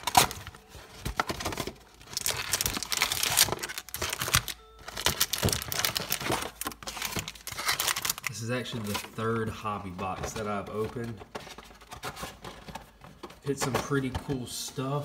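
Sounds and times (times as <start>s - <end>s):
cardboard clicks and knocks: 0.0s - 7.3s
foil packs crinkling: 0.0s - 15.0s.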